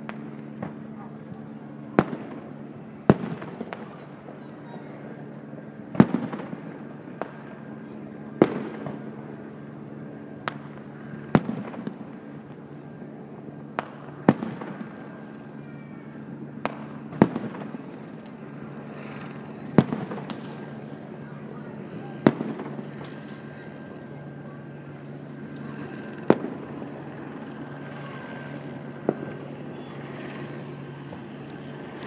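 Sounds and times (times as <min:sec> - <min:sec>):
small firework pops: 0:00.0 - 0:04.0, 0:05.9 - 0:06.6, 0:08.4 - 0:09.0, 0:10.4 - 0:12.8, 0:13.7 - 0:15.4, 0:16.6 - 0:18.4, 0:19.6 - 0:20.7, 0:22.2 - 0:23.6, 0:25.5 - 0:26.6
firework shells bursting: 0:22.2 - 0:23.5.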